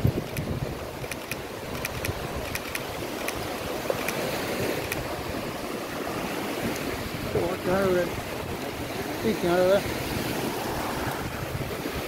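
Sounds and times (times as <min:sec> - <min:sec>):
surf washing on beach: 0:00.0 - 0:12.0
wind on microphone: 0:00.0 - 0:12.0
faint sharp ticks: 0:00.2 - 0:03.4, 0:04.0 - 0:05.0.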